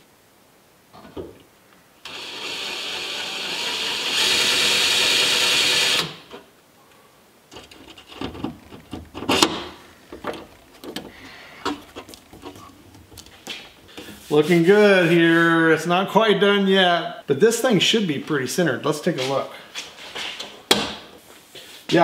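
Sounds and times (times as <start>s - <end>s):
cordless drill drilling: 2.0s - 6.4s.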